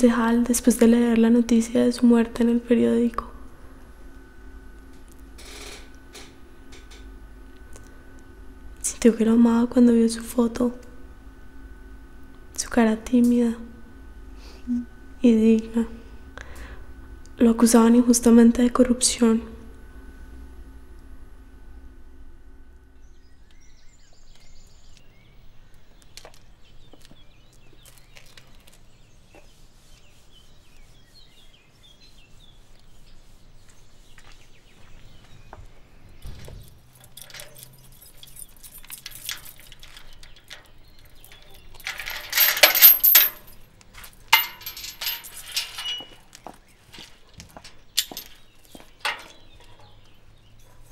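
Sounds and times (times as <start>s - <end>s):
keys jangling: 36.4s - 43.6s, 44.3s - 46.2s, 48.0s - 48.4s
light metallic clinks: 36.6s - 43.6s, 44.3s - 46.2s, 48.0s - 48.4s
iron gate rattling: 36.9s - 43.6s, 44.3s - 46.2s, 47.7s - 49.5s.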